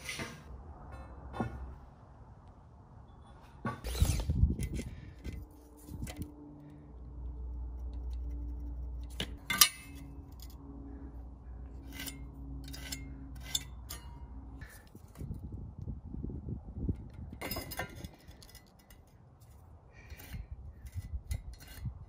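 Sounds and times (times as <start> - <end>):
low steady hum: 0.2 - 22.0
metal tools clicking and scraping: 7.8 - 10.7, 11.7 - 15.4, 17.0 - 22.0.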